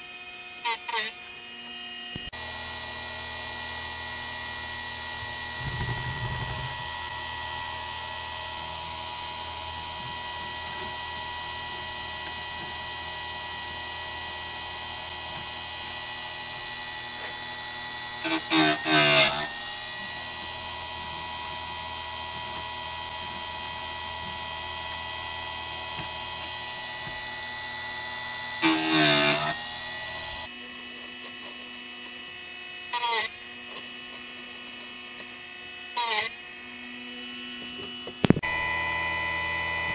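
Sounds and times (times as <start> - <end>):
grinding wheel on chain: 5.6 - 7.0.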